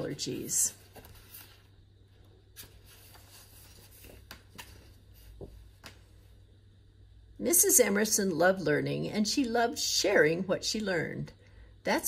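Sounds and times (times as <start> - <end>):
low steady hum: 0.0 - 12.0
paper rustling: 0.4 - 1.8, 2.5 - 6.0.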